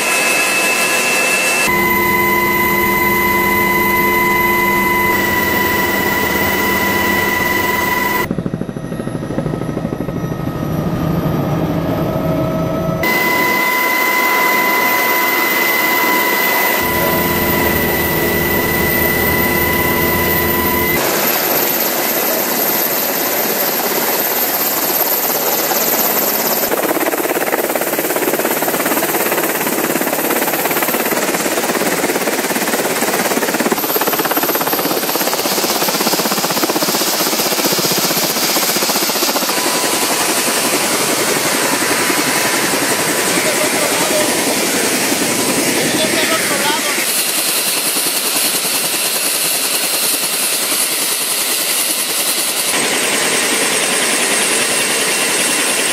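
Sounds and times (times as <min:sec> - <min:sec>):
steady whine: 0:00.0 - 0:21.7, 0:37.7 - 0:47.8
helicopter rotor and turbine: 0:00.0 - 0:55.9.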